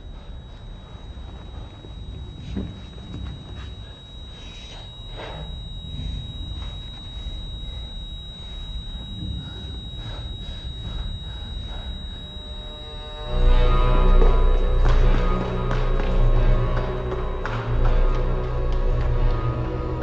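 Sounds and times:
soft breath-like sounds: 0:00.0 - 0:14.1
low rumbling drone: 0:00.0 - 0:20.0.

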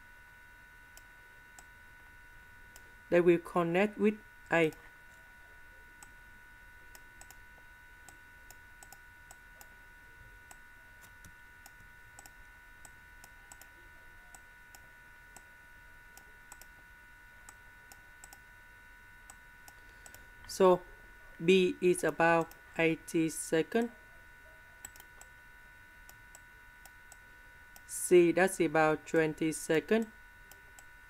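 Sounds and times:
computer mouse clicks: 0:06.9 - 0:07.4, 0:08.0 - 0:09.7, 0:10.5 - 0:13.7, 0:16.1 - 0:16.7, 0:17.5 - 0:18.4, 0:24.8 - 0:25.3.

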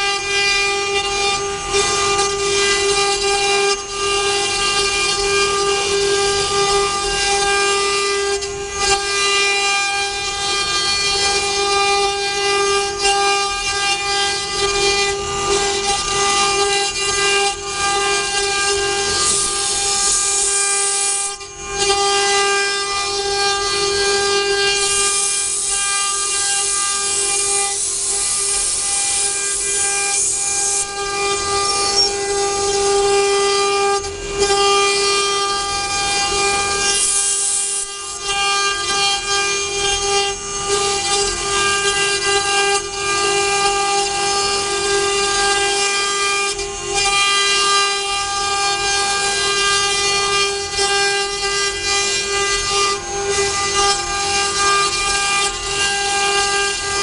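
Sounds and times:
cnc router spindles whining: 0:00.0 - 0:57.0
cutters carving wood: 0:00.0 - 0:57.0.

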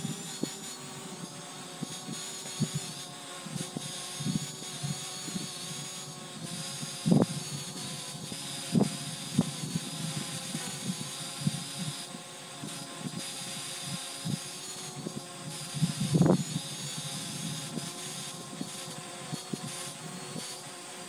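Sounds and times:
quadcopter propellers whining: 0:00.0 - 0:21.0
wind buffeting microphone: 0:06.4 - 0:12.0, 0:15.0 - 0:18.7.

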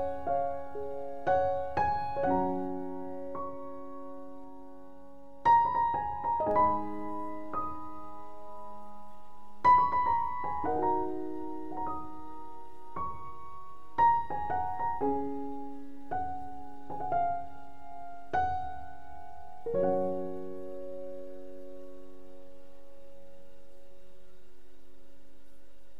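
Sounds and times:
slow piano music: 0:00.0 - 0:25.3.

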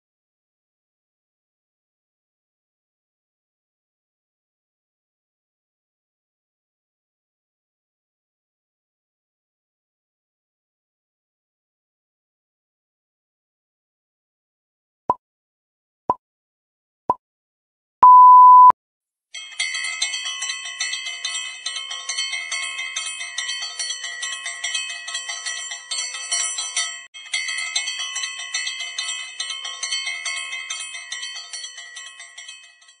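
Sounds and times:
timer beeps: 0:18.0 - 0:18.7
bell ringing rapidly: 0:19.4 - 0:33.0.

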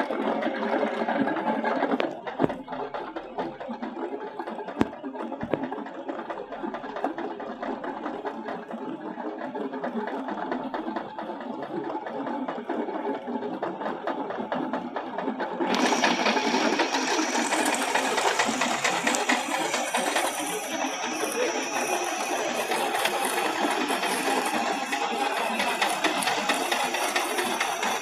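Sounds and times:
tractor running: 0:14.2 - 0:28.0
thin high whine: 0:15.7 - 0:28.0.

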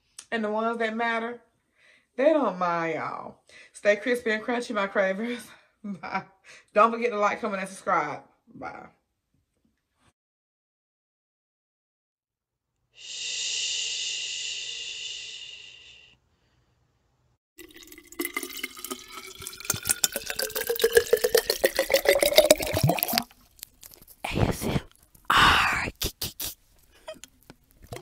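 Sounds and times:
water glugging into glass container: 0:17.6 - 0:24.0.

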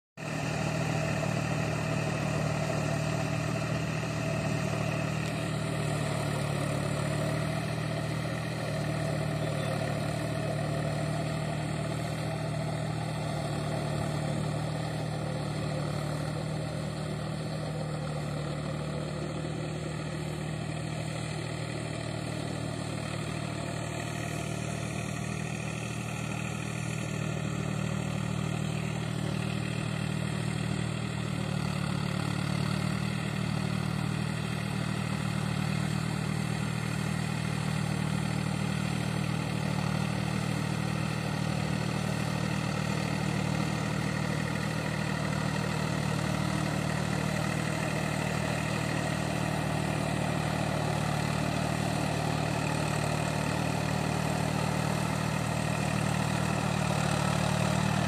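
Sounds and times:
tractor diesel engine droning: 0:00.2 - 0:58.0.

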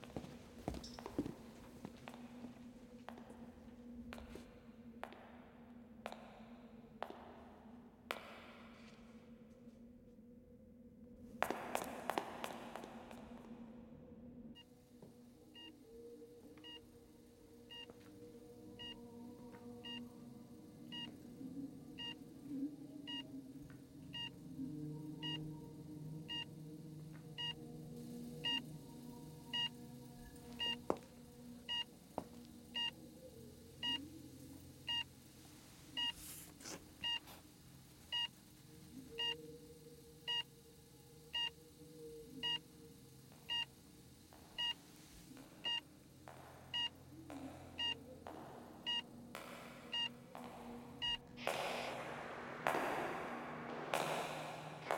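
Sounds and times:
patient monitor beeping: 0:19.6 - 0:20.1, 0:20.8 - 0:21.2, 0:22.0 - 0:22.2, 0:23.0 - 0:24.4, 0:25.2 - 0:35.2, 0:36.0 - 0:36.2, 0:37.0 - 0:37.4, 0:38.1 - 0:38.4, 0:39.1 - 0:40.6, 0:41.2 - 0:42.8, 0:43.4 - 0:43.8, 0:44.5 - 0:44.8, 0:45.6 - 0:45.9, 0:47.8 - 0:48.1, 0:48.8 - 0:49.1, 0:49.9 - 0:50.2, 0:50.9 - 0:51.4.

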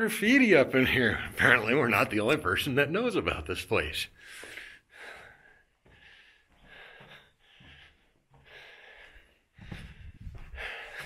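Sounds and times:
person breathing heavily: 0:04.2 - 0:11.0
wind rumble on microphone: 0:09.7 - 0:10.6.

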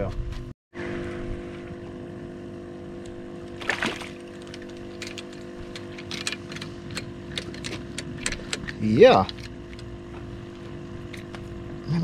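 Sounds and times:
boat mechanical hum: 0:00.8 - 0:12.0
fish splashing at surface: 0:03.5 - 0:04.6.

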